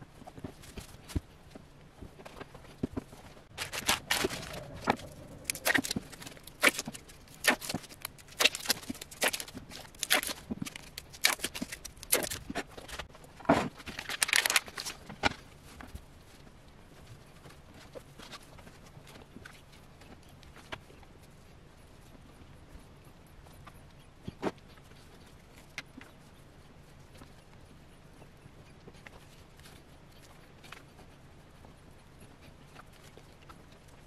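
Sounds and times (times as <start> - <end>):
plastic wrapper crinkling and tearing: 3.6 - 13.0, 13.8 - 15.3.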